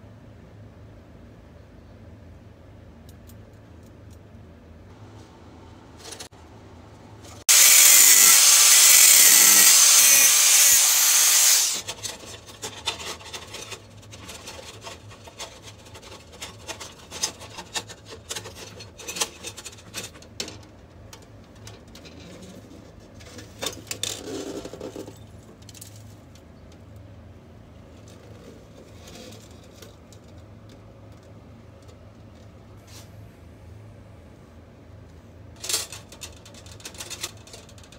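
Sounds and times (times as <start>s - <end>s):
metal sheet cutting: 7.4s - 11.9s.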